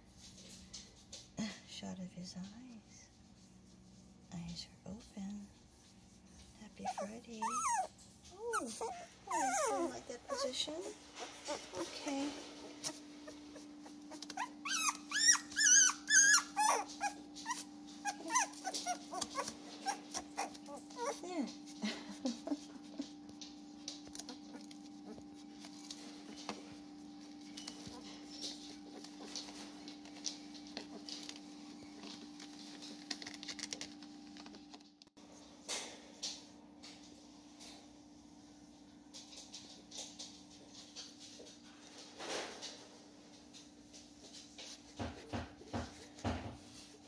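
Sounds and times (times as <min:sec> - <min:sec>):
puppy paws scratching on padding: 0:00.0 - 0:01.4, 0:02.1 - 0:35.4, 0:36.2 - 0:47.0
puppy squealing and whining: 0:06.8 - 0:21.3.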